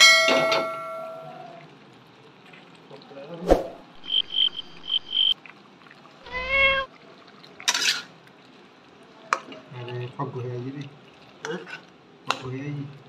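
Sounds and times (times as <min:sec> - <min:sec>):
high-pitched beeps: 0:04.0 - 0:05.4
cat meowing: 0:06.2 - 0:06.9.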